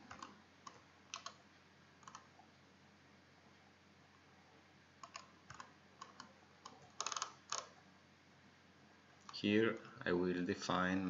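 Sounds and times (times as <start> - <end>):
computer mouse clicking: 0.0 - 1.4, 2.0 - 2.3, 5.0 - 7.8.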